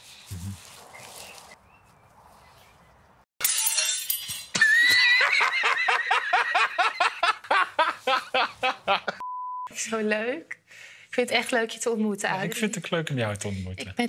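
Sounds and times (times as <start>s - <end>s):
glass shattering: 3.4s - 5.1s
hearty laughter: 5.0s - 9.2s.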